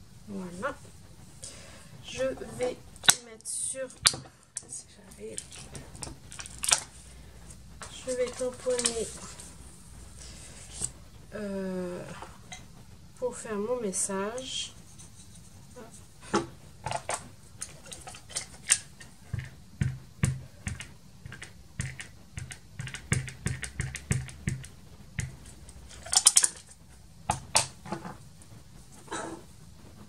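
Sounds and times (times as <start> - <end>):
clicks and taps of plastic stamps: 19.3 - 25.5.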